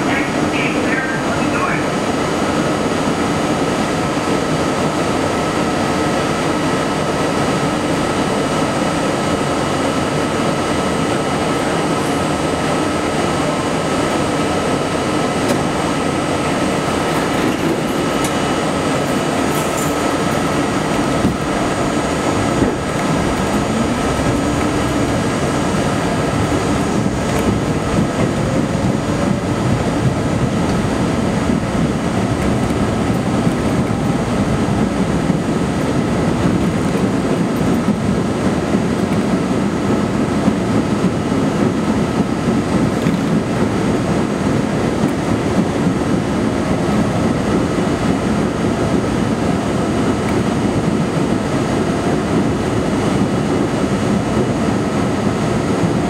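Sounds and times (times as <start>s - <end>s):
train traction motors accelerating: 0.0s - 56.0s.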